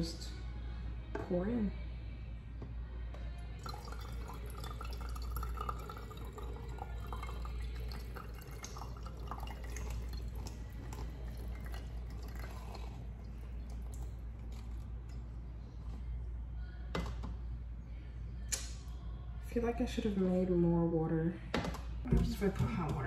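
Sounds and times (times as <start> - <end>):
coffee pouring into a filter: 3.6 - 14.8.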